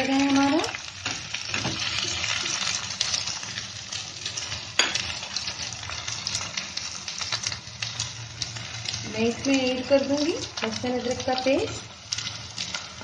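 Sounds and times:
chicken and onions sizzling in a pan: 0.0s - 13.0s.

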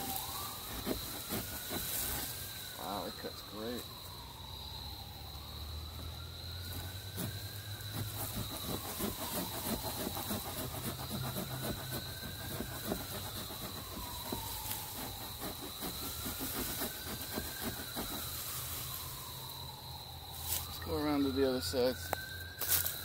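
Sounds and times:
hand saw rasping through wood: 0.0s - 2.3s, 6.7s - 18.4s.

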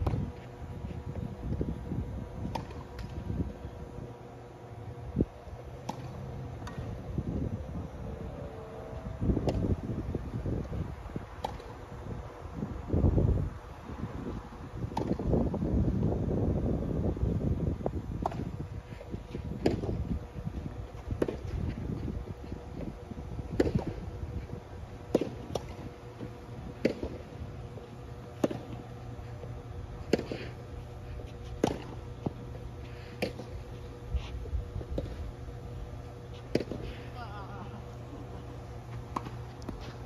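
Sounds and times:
wind rumbling on microphone: 0.0s - 28.8s
tennis ball struck by rackets: 26.8s - 27.2s, 28.4s - 28.8s, 31.6s - 32.4s.

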